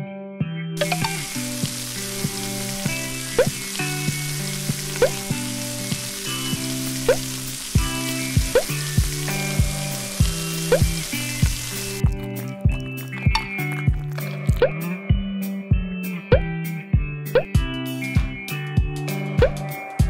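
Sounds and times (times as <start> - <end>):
food sizzling on a grill: 0.8 - 14.6
light background music: 0.8 - 20.0.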